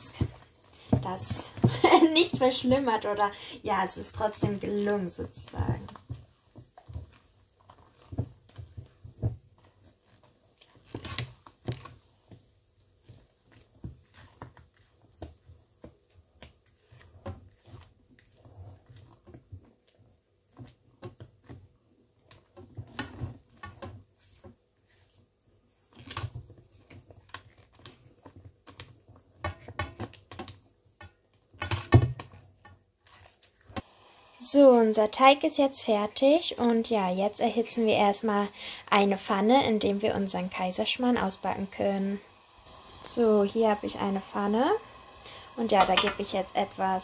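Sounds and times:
spatula folding batter in bowl: 0.0s - 33.9s.

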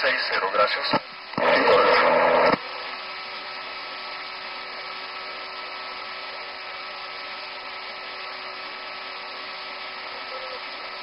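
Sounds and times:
cockpit hiss: 0.0s - 11.0s
constant hum: 0.0s - 11.0s.

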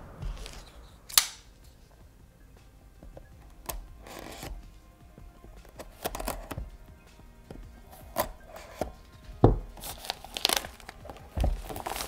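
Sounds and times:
faint background music: 0.0s - 12.0s
blade slitting plastic wrap: 9.8s - 12.0s
plastic rustle: 9.8s - 12.0s.

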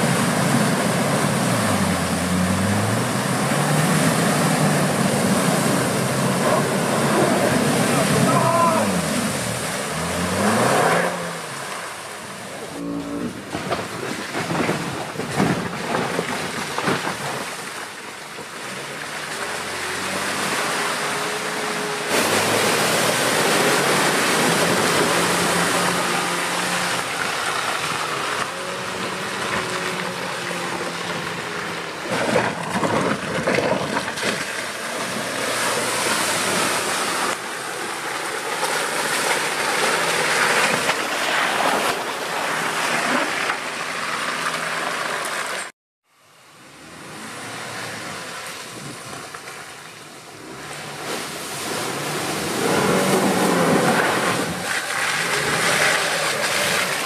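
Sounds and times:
suv engine revving: 0.0s - 13.8s, 46.6s - 57.0s
water and mud splashing: 0.0s - 57.0s.

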